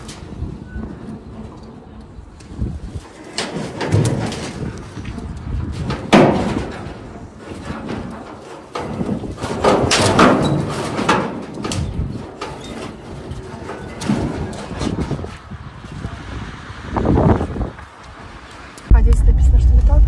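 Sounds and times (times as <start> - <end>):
metal roofing sheets knocking: 3.3 - 4.7, 5.7 - 15.1.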